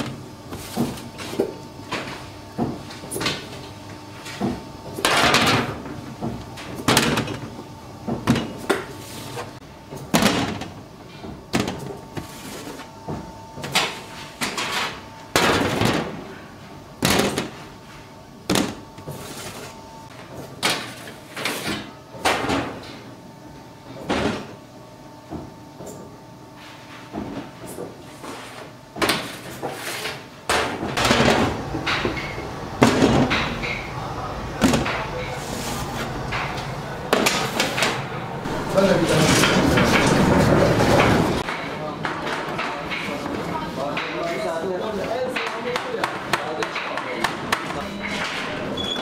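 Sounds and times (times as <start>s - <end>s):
machine hum: 30.4s - 44.8s.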